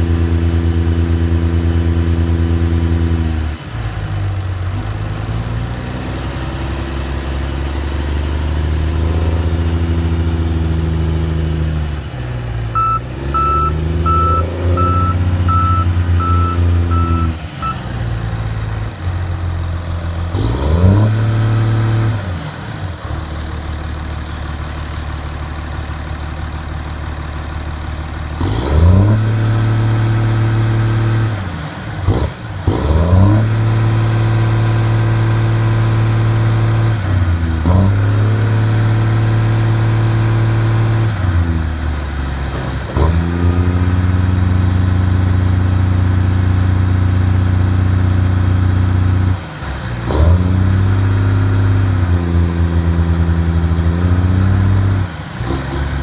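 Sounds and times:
diesel engine revving: 0.0s - 56.0s
backup alarm beeping: 12.7s - 17.9s.

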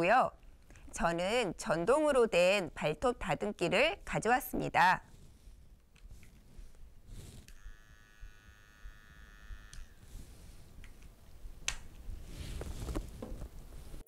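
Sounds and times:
nail grinder motor whine: 7.4s - 10.3s.

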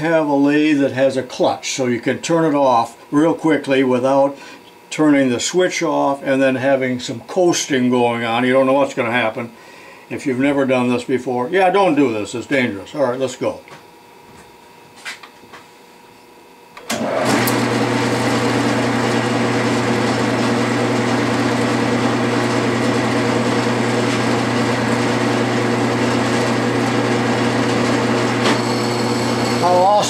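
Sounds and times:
metal lathe running: 16.9s - 30.0s.

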